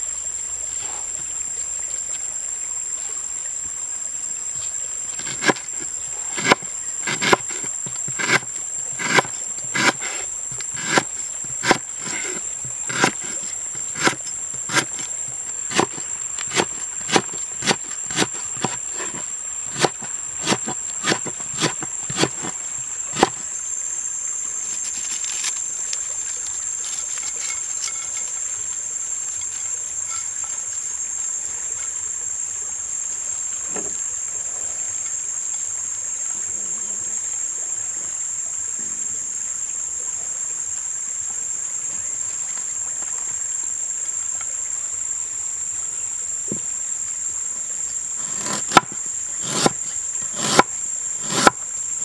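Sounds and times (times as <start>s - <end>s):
high-pitched insect drone: 0.0s - 42.7s
knife chopping on wooden board: 5.2s - 22.6s, 23.2s - 23.4s, 48.2s - 51.6s.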